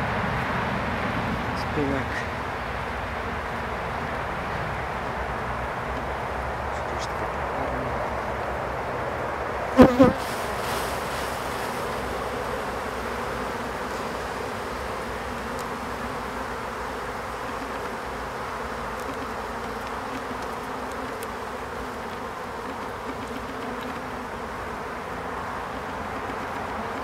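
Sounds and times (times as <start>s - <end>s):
bees buzzing: 1.4s - 27.0s
faint clicks: 15.5s - 15.7s.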